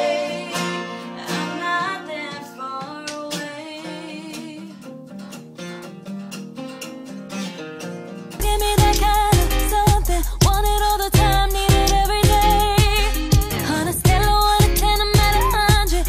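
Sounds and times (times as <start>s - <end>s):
woman singing wordless notes: 0.0s - 4.8s, 8.4s - 16.0s
acoustic guitars strumming: 0.0s - 16.0s.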